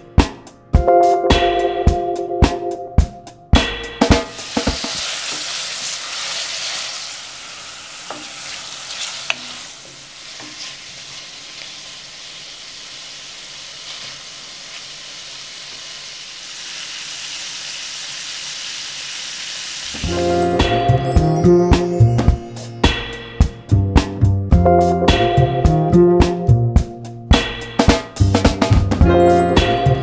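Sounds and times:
prawns sizzling in hot oil: 4.3 - 22.7.

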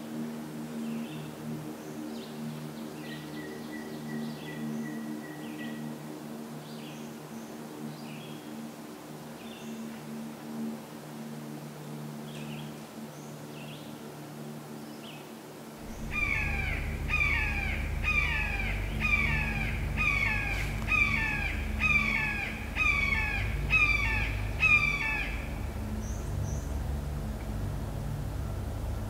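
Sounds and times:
hawk screaming: 15.9 - 25.8.

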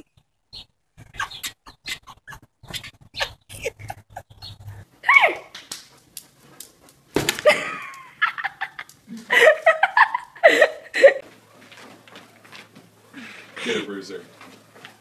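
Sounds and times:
person laughing: 1.0 - 4.6, 7.4 - 11.2
sharp knocks and slaps: 7.1 - 7.6.

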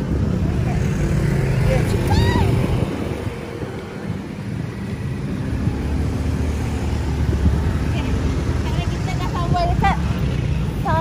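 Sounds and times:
vehicle engines passing: 0.0 - 11.0.

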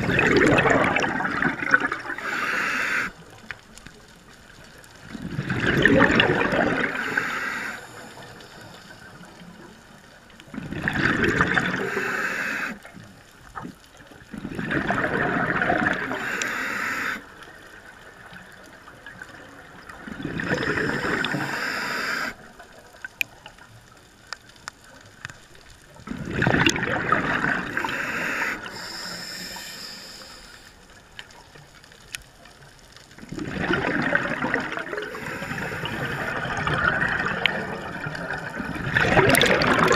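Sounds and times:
exhaled bubbles gushing underwater: 0.0 - 3.4, 4.8 - 8.0, 9.0 - 23.8, 25.9 - 29.4, 33.1 - 39.9
faint clicks: 1.7 - 5.2, 15.9 - 26.8, 27.6 - 33.5
regulator hiss: 2.2 - 3.2, 6.9 - 9.2, 11.8 - 12.8, 16.1 - 17.3, 20.8 - 22.4, 27.7 - 30.8, 35.1 - 36.4.

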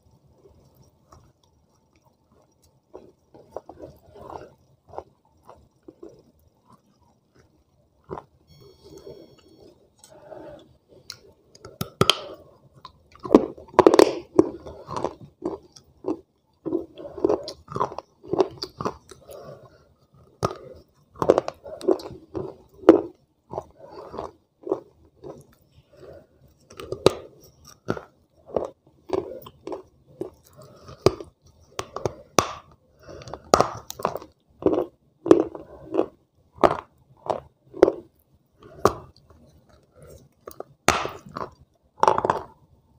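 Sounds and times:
grinding chewing: 9.0 - 42.6.

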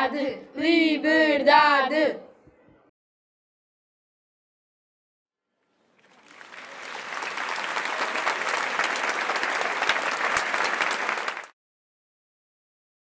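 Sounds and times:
many hands clapping: 5.9 - 11.6.

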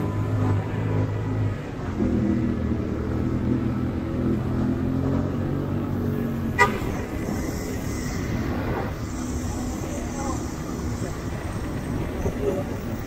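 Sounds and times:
vehicle horn beep: 6.6 - 7.1.

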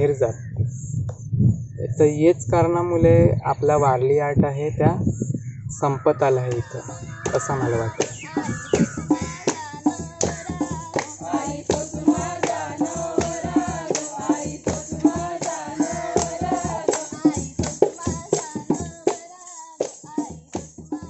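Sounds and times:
percussion beat: 6.5 - 21.0
voices singing folk song: 6.5 - 21.0.

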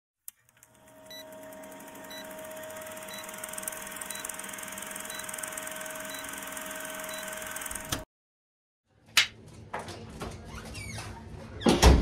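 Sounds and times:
film projector clatter: 0.5 - 8.0.

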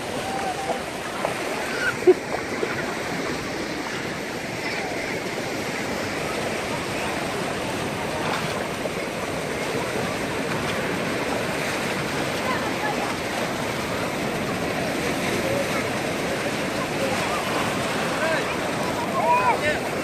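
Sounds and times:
children's voices: 0.0 - 7.3, 12.3 - 16.0
small waves washing ashore: 0.0 - 20.0.

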